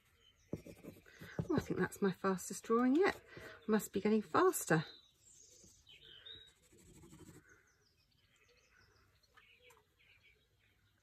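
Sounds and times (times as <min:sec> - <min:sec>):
faint bird chirps: 0:04.7 - 0:11.0.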